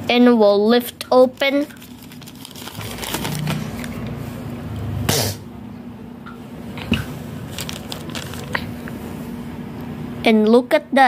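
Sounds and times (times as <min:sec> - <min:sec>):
cardboard packaging rustling: 0:01.4 - 0:04.1, 0:07.4 - 0:08.9.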